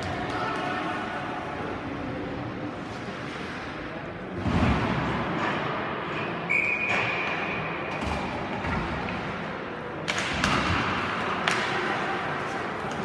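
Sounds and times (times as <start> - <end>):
short high whistle: 6.5 - 7.1.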